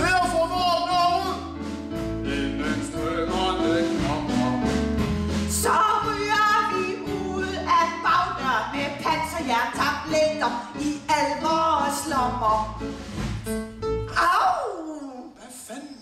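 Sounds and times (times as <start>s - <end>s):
man and woman singing: 0.0s - 1.5s, 2.2s - 4.7s, 5.5s - 12.6s
bass and keyboard music: 0.0s - 14.3s.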